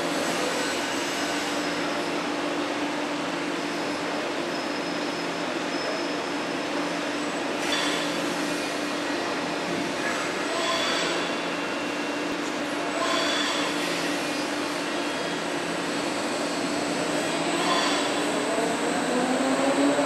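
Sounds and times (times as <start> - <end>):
machine hum and hiss: 0.0 - 19.0.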